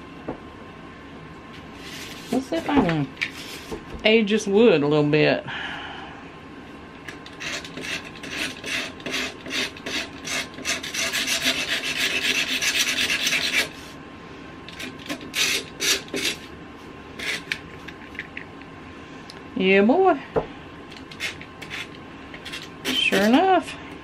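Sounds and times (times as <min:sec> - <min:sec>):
razor blade scraping paint off wood: 0:07.3 - 0:13.8, 0:14.7 - 0:16.5, 0:17.2 - 0:17.6, 0:21.0 - 0:23.4.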